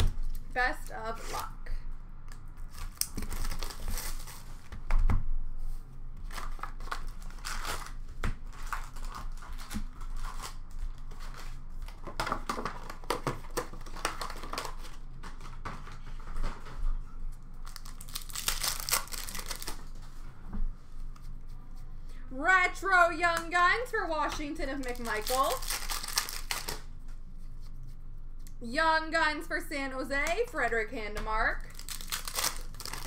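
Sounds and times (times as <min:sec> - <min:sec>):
wrappers crinkling and tearing: 0:02.6 - 0:04.5, 0:06.2 - 0:15.6, 0:17.6 - 0:20.0, 0:24.6 - 0:26.9, 0:31.6 - 0:33.0.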